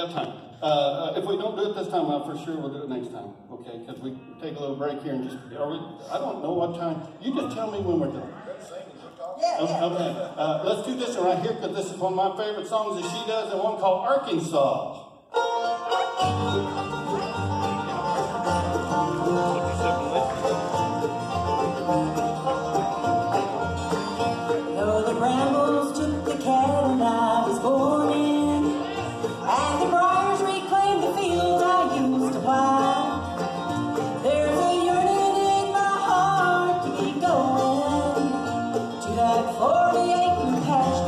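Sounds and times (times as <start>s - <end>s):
banjo: 9.9s - 13.8s, 15.3s - 41.0s
mandolin: 12.7s - 13.8s, 15.3s - 41.0s
acoustic guitars: 15.3s - 41.0s
dobro: 15.3s - 41.0s
person singing: 24.7s - 41.0s.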